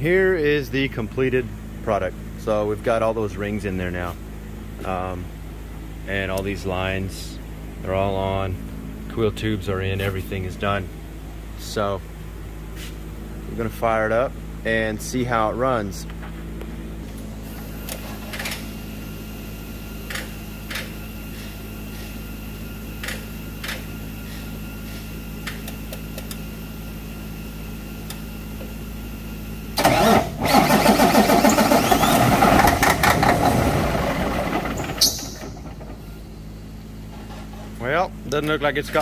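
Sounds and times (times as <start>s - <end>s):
low hum: 0.0s - 39.0s
diesel engine starter cranking: 29.8s - 36.3s.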